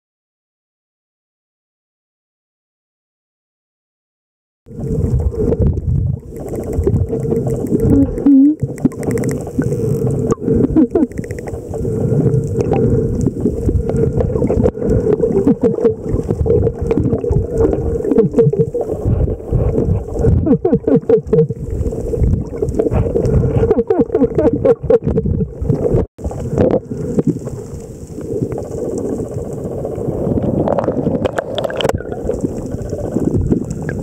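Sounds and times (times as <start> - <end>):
low underwater hum: 4.7 - 34.0
rushing water: 4.7 - 34.0
dolphin clicks: 6.3 - 11.6.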